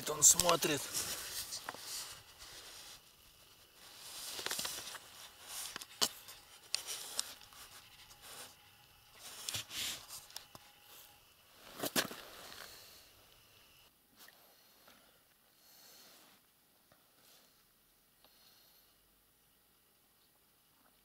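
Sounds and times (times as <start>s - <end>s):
soft rustling and scraping: 0.0s - 13.5s.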